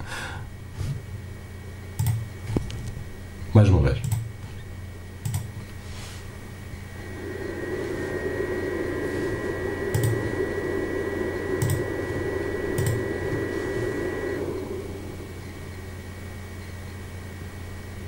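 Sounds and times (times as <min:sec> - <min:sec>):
cooling fan whirring with whine: 0:00.0 - 0:18.0
sharp clicks: 0:02.0 - 0:02.2, 0:05.2 - 0:05.5, 0:12.8 - 0:13.0.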